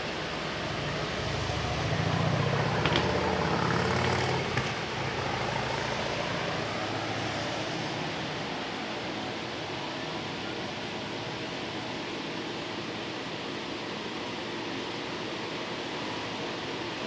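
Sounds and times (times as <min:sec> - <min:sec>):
vehicle engine hum: 0:00.0 - 0:11.7
steady background hiss: 0:00.0 - 0:17.0.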